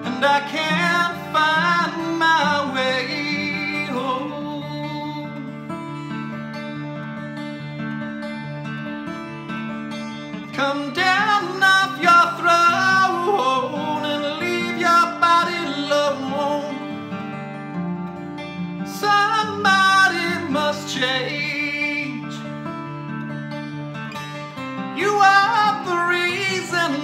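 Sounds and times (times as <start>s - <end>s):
man singing: 0.0s - 5.7s, 10.4s - 17.2s, 18.8s - 22.7s, 24.8s - 27.0s
twelve-string acoustic guitar: 0.0s - 27.0s.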